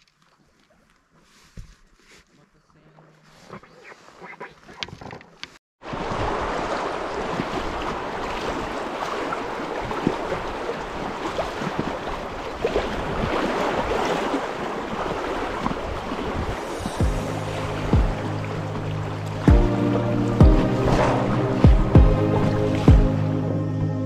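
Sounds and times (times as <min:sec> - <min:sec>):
river water rushing: 0:05.8 - 0:23.4
wind buffeting microphone: 0:06.0 - 0:19.7.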